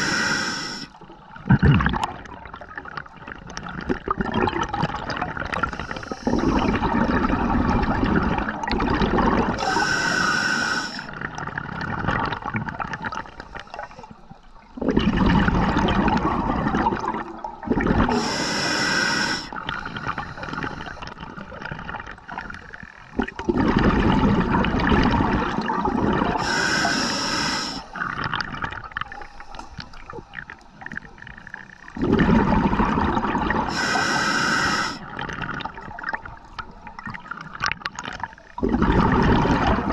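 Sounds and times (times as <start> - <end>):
hissing inhale through regulator: 0.0 - 1.0, 5.5 - 6.8, 9.5 - 11.2, 13.3 - 14.7, 18.0 - 21.5, 26.3 - 28.2, 29.1 - 32.2, 33.5 - 35.1
exhaled bubbles rushing: 1.1 - 9.8, 11.1 - 13.4, 14.7 - 18.3, 19.5 - 26.6, 28.0 - 29.2, 29.9 - 33.7, 35.0 - 39.9.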